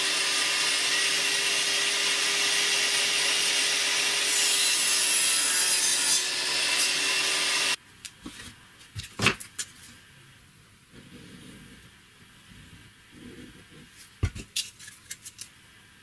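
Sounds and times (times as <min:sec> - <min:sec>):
table saw cutting wood: 0:00.0 - 0:07.8.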